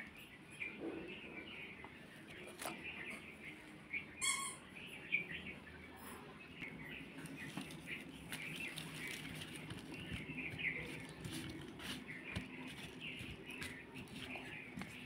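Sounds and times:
small birds chirping: 0.0 - 15.0
potato slices patting on leaf: 7.2 - 15.0.

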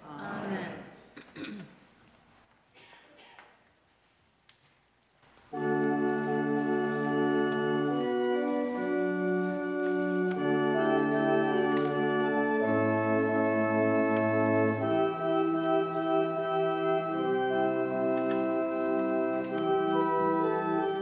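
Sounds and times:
organ playing sustained chords: 5.5 - 21.0.

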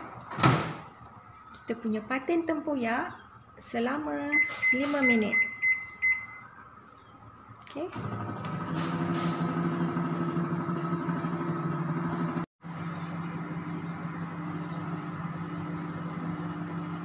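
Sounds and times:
microwave oven humming: 8.0 - 17.0.

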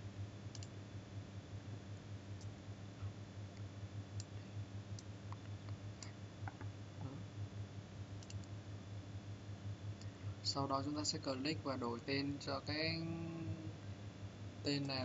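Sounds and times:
steady low hum: 0.0 - 15.0
computer mouse clicking: 0.5 - 0.7, 8.2 - 8.5.

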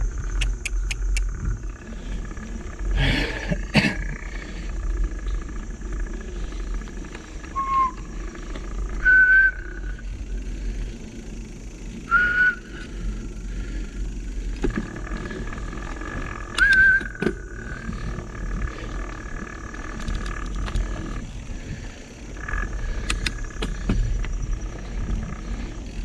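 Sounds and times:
low rumble of bike on trail: 0.0 - 26.0
bike brakes squealing: 7.4 - 10.2, 12.0 - 13.2, 16.5 - 17.9.

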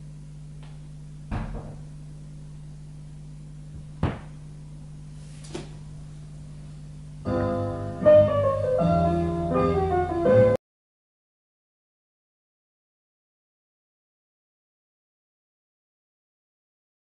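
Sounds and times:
steady low hum: 0.0 - 10.6
stylus soft thump: 1.3 - 1.8, 3.8 - 4.4
record sharp pops: 3.7 - 4.4
music from record: 7.3 - 10.6.

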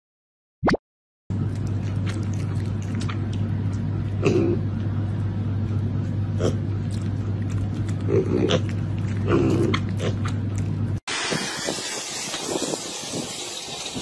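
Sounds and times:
steady low hum: 1.3 - 11.0
piglets grunting: 4.2 - 4.8, 6.3 - 6.8, 7.9 - 10.4
wind and surf hiss: 11.1 - 14.0.

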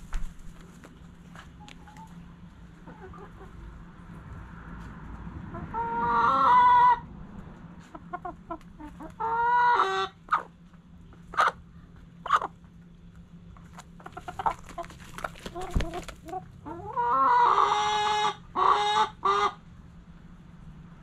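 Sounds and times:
chickens calling: 0.2 - 4.0, 5.4 - 7.1, 7.8 - 12.9, 13.6 - 19.7
chickens clucking softly: 1.3 - 4.1, 5.1 - 12.9, 13.6 - 19.7.

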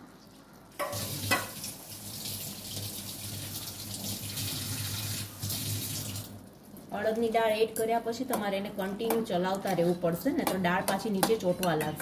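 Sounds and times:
tap water running: 0.7 - 6.4.

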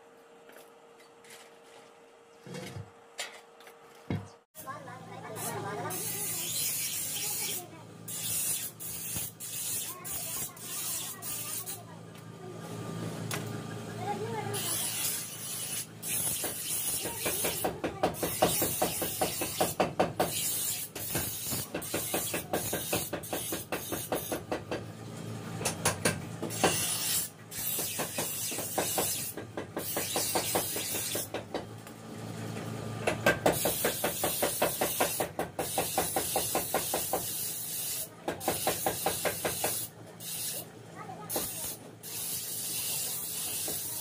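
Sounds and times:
grinding wheel on steel blade: 5.3 - 11.9, 14.2 - 24.5, 26.5 - 31.3, 33.5 - 44.0
motor hum: 11.5 - 17.0.

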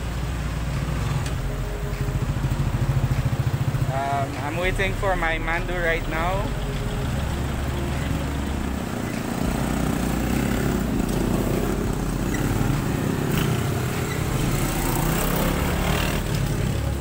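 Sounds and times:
vehicle engines droning: 0.0 - 17.0.

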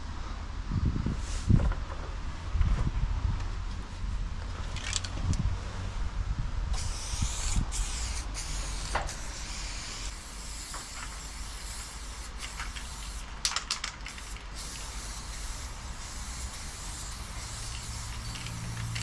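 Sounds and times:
spray paint can hissing: 6.7 - 19.0.

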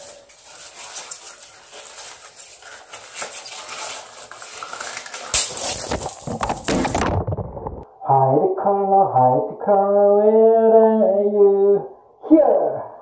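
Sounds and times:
rubber balloons squeaking: 0.0 - 7.8.

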